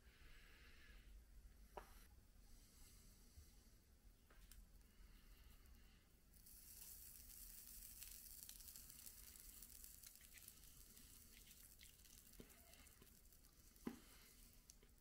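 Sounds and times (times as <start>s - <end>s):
flux sizzling and crackling: 6.4s - 15.0s.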